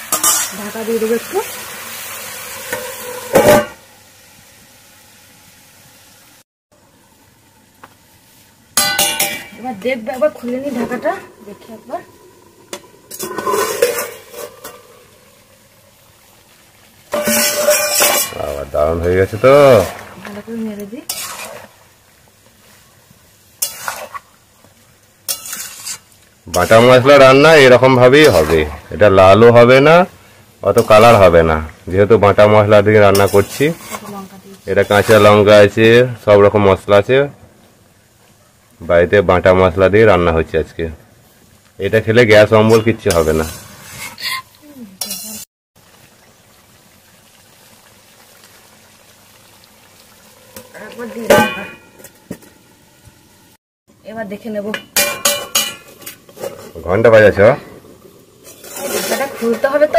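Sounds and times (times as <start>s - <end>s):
spatula scraping in a wok: 0.0s - 1.2s, 8.8s - 14.9s, 17.1s - 21.8s, 23.6s - 24.3s, 25.3s - 27.2s, 28.0s - 28.8s, 33.0s - 35.5s, 42.5s - 45.5s, 54.8s - 57.2s, 58.4s - 59.9s
faint sizzle: 0.0s - 59.9s
food bubbling in a wok: 10.2s - 36.3s, 43.4s - 59.9s.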